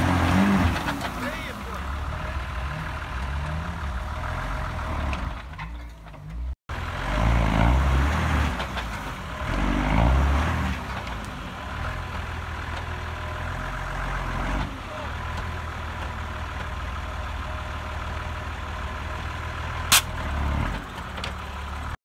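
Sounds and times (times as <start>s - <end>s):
car engine revving: 0.0s - 5.5s, 6.7s - 15.2s.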